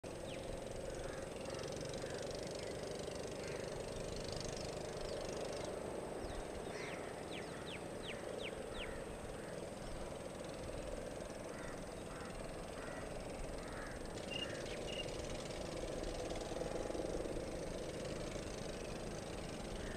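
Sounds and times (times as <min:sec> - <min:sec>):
low hum: 0:00.0 - 0:19.9
whistled bird calls: 0:14.2 - 0:15.2.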